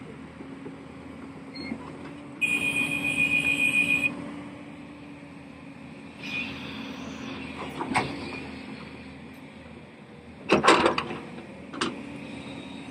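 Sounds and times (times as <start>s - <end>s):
diesel machinery engine running: 0.0s - 12.9s
high-pitched warning tone: 2.4s - 4.1s.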